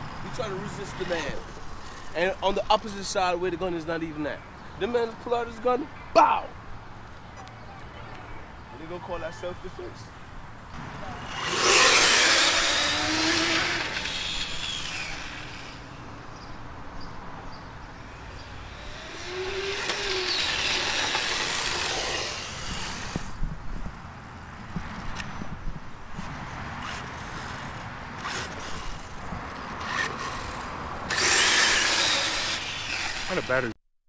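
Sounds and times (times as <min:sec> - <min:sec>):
remote-control cars rushing past: 0:00.0 - 0:03.2, 0:10.7 - 0:16.1, 0:18.0 - 0:23.5, 0:26.1 - 0:33.7.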